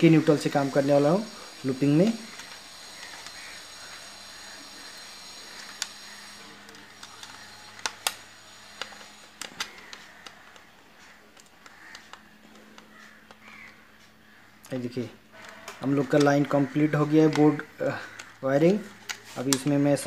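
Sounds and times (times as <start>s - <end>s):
clicks of wires and fittings: 6.6s - 20.0s.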